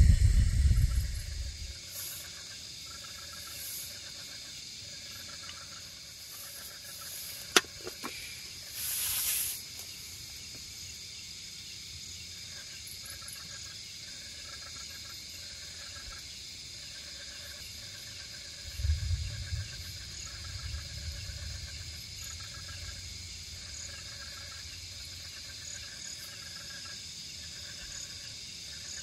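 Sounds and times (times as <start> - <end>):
crickets trilling: 0.0 - 29.0
short rustle: 7.2 - 10.0.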